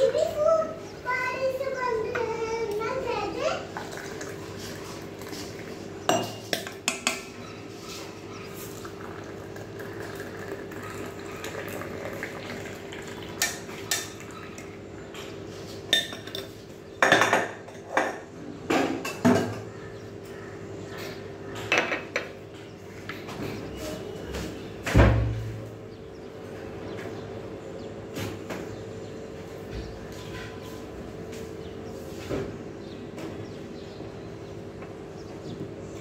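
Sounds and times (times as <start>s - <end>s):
tea pouring: 3.6s - 5.7s, 8.6s - 14.8s.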